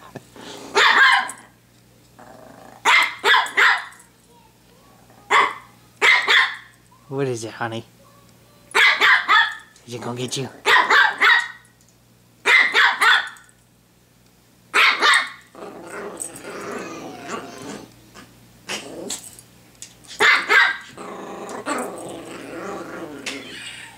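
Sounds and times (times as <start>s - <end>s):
dog barking sharply: 0.8s - 1.4s, 2.9s - 3.9s, 5.3s - 6.7s, 8.8s - 9.6s, 10.7s - 11.6s, 12.4s - 13.4s, 14.8s - 15.4s, 20.2s - 20.9s
dog growling: 2.2s - 2.9s, 4.9s - 5.6s, 15.5s - 19.4s, 20.9s - 23.9s.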